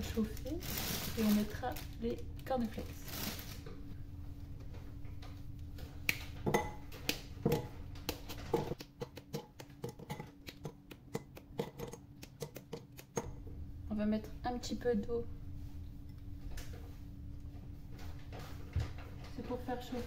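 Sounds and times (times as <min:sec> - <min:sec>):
pieces clicking into ceramic bowl: 0:07.5 - 0:13.3
chocolate snapping: 0:08.0 - 0:13.3.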